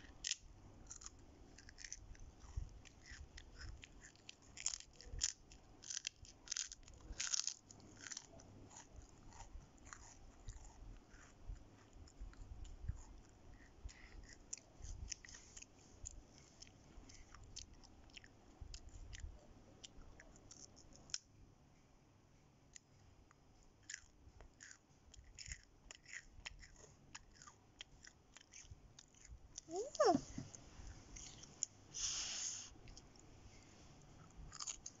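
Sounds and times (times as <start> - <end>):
child chewing crunchy crackers: 0.0 - 21.3, 22.6 - 35.0
child's sliding voice sound: 29.7 - 30.4.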